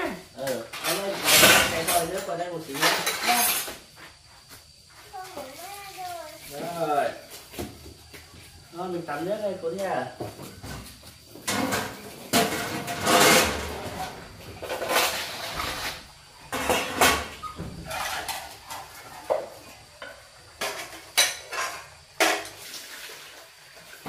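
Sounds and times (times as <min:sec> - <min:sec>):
dishes and utensils clinking: 0:16.5 - 0:22.6.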